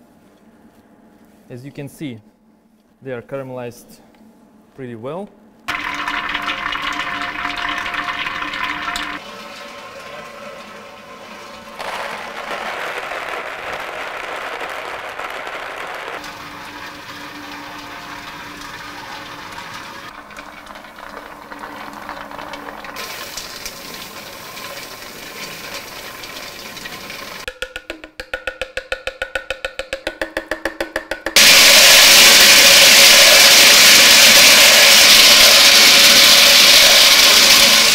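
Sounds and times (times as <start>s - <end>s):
nuts tumbling in rotating steel pan: 5.7s - 27.6s, 31.3s - 37.9s.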